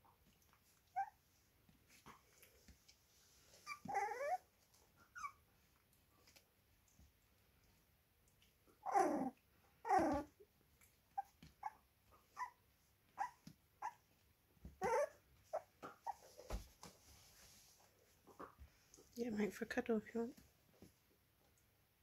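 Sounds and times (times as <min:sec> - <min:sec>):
puppies yelping: 0:03.7 - 0:04.4, 0:08.8 - 0:10.3, 0:14.8 - 0:16.3
puppies yipping: 0:14.8 - 0:16.4.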